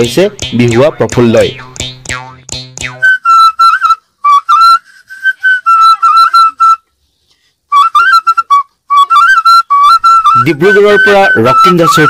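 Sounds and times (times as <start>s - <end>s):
vessel whistle tune: 1.6s - 6.8s, 7.7s - 12.0s.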